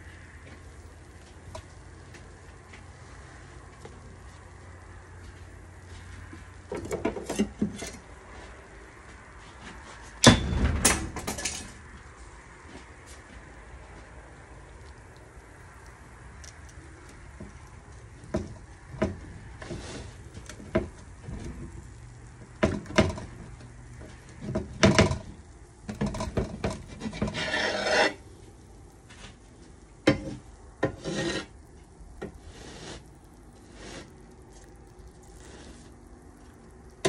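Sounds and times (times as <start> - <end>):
knife rasping through crust: 26.9 - 28.2, 30.9 - 31.5.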